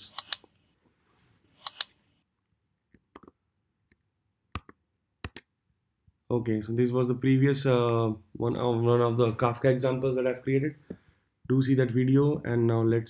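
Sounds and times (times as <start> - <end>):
computer mouse clicking: 0.0 - 0.5, 1.6 - 1.9, 4.6 - 5.5.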